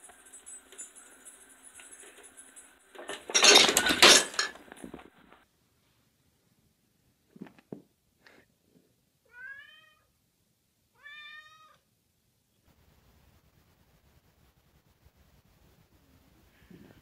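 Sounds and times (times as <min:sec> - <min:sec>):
cat meowing: 0:09.3 - 0:10.1, 0:10.9 - 0:11.8.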